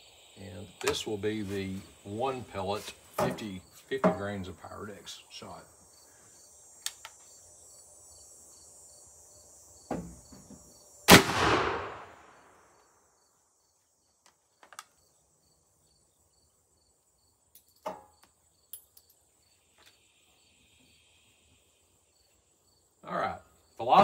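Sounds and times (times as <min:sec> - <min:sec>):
rifle shot with ringing tail: 0:11.1 - 0:12.5.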